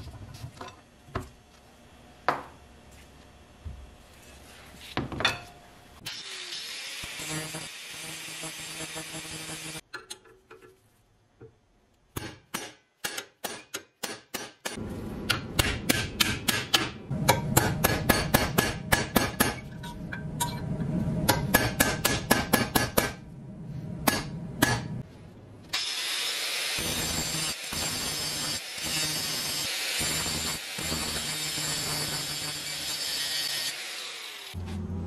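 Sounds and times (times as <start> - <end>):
hammer striking metal punch: 12.1 - 20.6, 21.2 - 23.2, 24.0 - 25.0.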